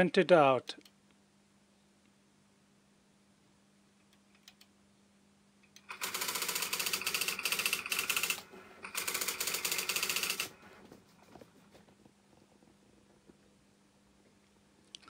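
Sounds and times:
electric typewriter hammering: 5.9s - 10.6s.

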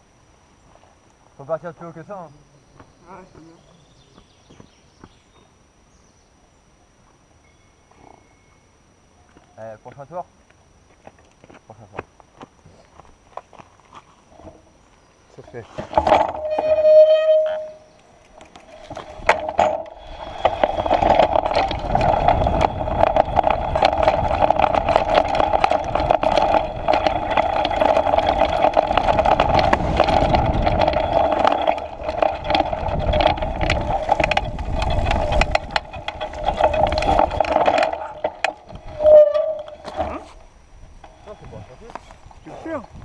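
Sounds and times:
bike tyres on dirt and stones: 10.5s - 43.0s
bike rattling and knocking: 15.8s - 43.0s
steady buzz: 15.9s - 43.0s.

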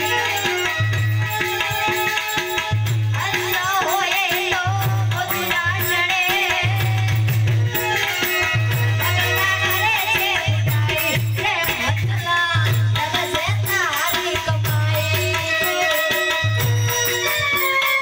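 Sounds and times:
electronic keyboard: 0.0s - 18.0s
rattling percussion: 0.0s - 18.0s
woman singing into a microphone: 0.0s - 18.0s.

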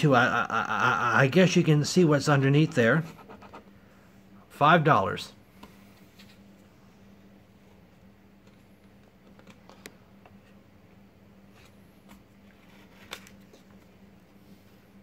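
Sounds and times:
steady low hum: 0.0s - 15.0s
paper rustling: 11.5s - 14.0s.

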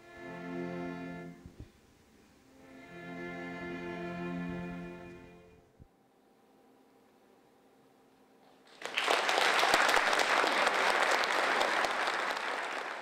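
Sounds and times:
audience applause: 8.7s - 13.0s.

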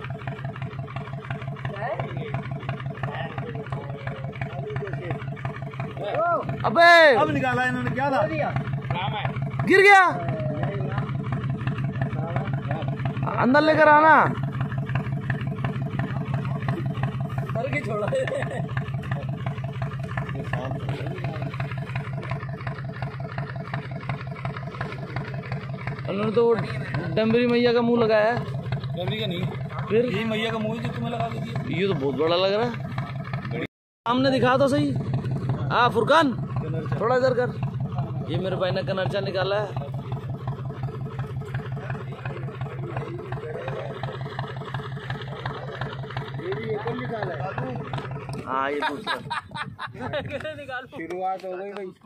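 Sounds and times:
boat engine idling: 0.0s - 52.0s.

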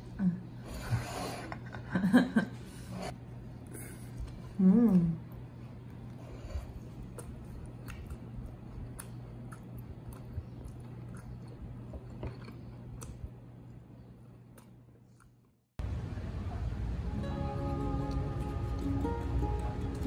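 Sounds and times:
steady low hum: 0.0s - 20.0s
person chewing food: 5.3s - 15.5s.

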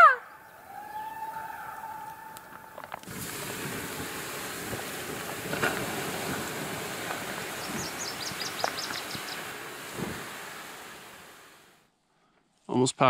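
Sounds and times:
bird chirping: 0.2s - 1.7s, 7.5s - 9.5s
water hissing on hot coals: 2.0s - 11.9s.

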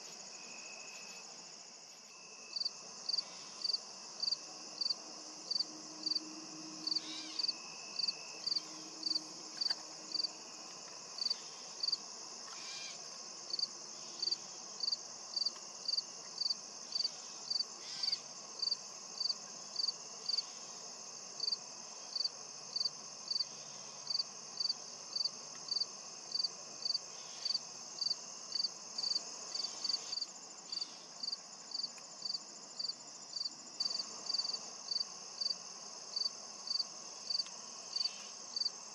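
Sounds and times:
insect chirping rhythmically: 1.6s - 10.4s, 11.0s - 38.9s
high-pitched insect drone: 2.0s - 10.4s.

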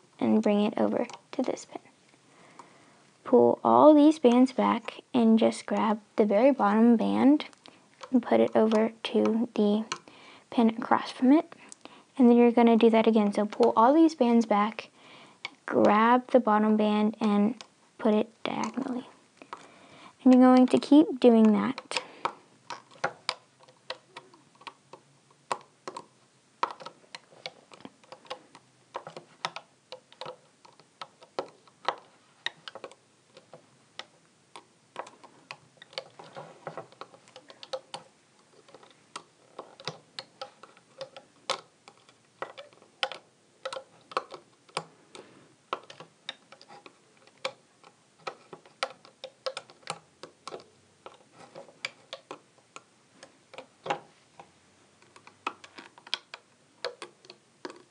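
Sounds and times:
plastic hook clicking on loom: 20.3s - 54.1s, 55.0s - 57.9s.

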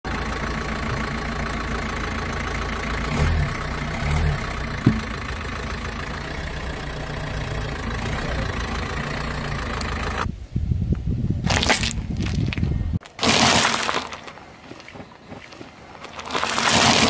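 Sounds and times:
car engine idling: 0.0s - 10.3s.

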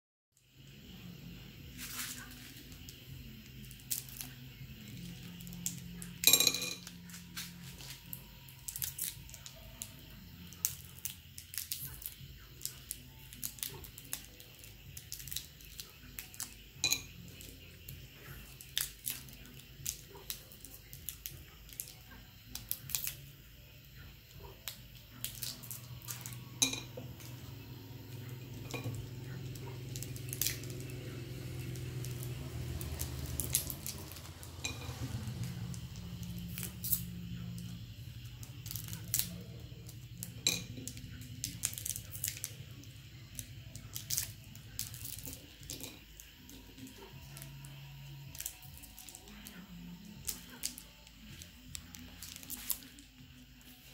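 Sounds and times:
low steady hum: 0.4s - 53.9s
candies clicking on ceramic plate: 5.0s - 8.0s
plastic wrappers crinkling: 33.0s - 34.8s, 38.6s - 39.4s, 40.4s - 42.6s, 43.3s - 47.7s, 50.2s - 53.7s.

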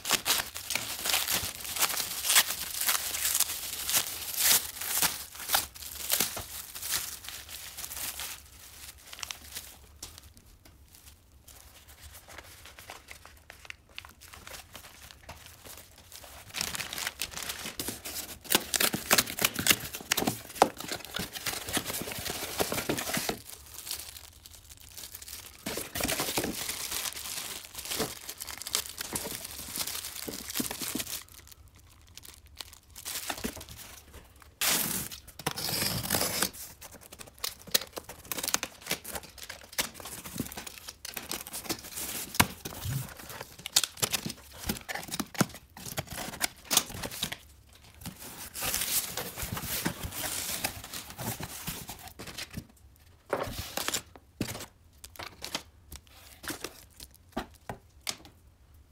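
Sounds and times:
plastic bag crinkling: 0.0s - 52.2s
paper and cardboard rustling: 10.8s - 24.2s, 25.0s - 31.5s, 33.0s - 57.7s
packing tape tearing: 16.6s - 24.3s, 34.6s - 47.4s.

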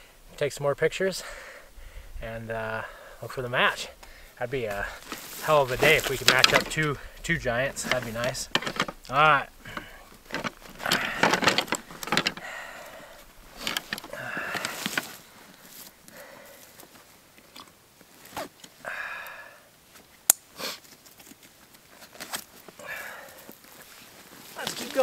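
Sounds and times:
antlers rustling and clacking: 3.2s - 17.7s, 23.6s - 25.0s.

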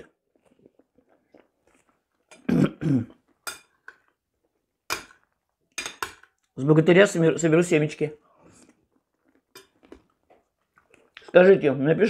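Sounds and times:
soft chewing: 0.0s - 6.6s, 8.2s - 11.7s
woman clearing her throat: 2.4s - 3.2s.

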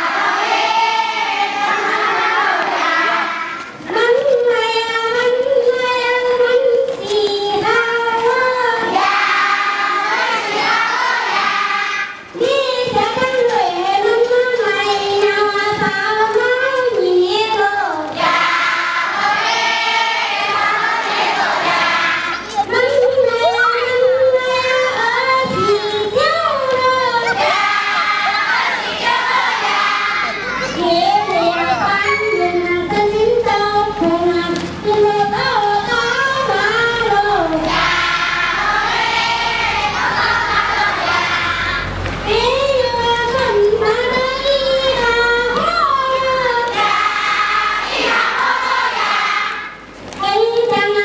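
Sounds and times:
group singing chorus: 0.0s - 3.7s, 8.8s - 12.2s, 18.1s - 22.4s, 26.8s - 30.4s, 35.9s - 42.1s, 46.4s - 49.8s
children and women singing: 0.0s - 51.0s.

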